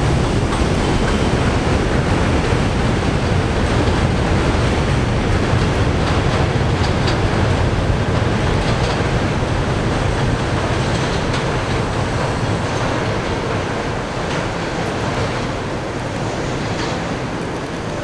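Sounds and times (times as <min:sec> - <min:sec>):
subway train rumbling: 0:00.0 - 0:18.0
train wheel clicks: 0:00.0 - 0:18.0.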